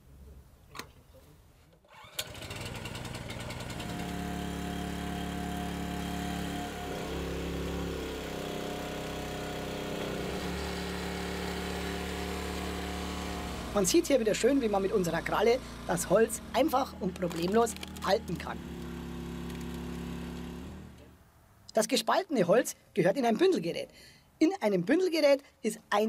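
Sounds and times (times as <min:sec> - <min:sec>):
log splitter engine running: 0:02.1 - 0:21.1.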